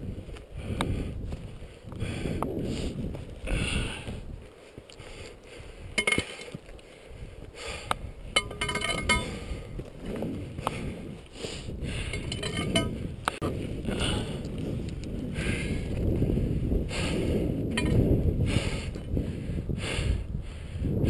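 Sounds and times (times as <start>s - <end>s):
wind noise on microphone: 0.0s - 21.0s
footsteps on rock: 0.3s - 11.3s
ringing clinks: 6.0s - 6.6s, 8.4s - 9.4s, 12.1s - 12.9s, 17.8s - 18.0s.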